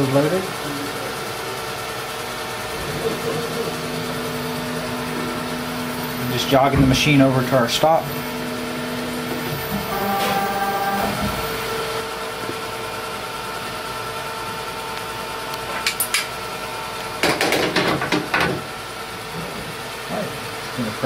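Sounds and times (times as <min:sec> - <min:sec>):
machine axes humming: 0:00.0 - 0:20.0
high machine whine: 0:00.0 - 0:21.0.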